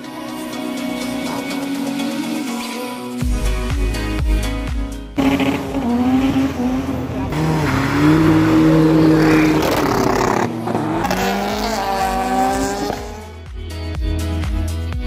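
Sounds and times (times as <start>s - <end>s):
music with a steady beat: 0.0s - 6.1s, 11.1s - 15.0s
car engine revving hard: 5.2s - 13.4s.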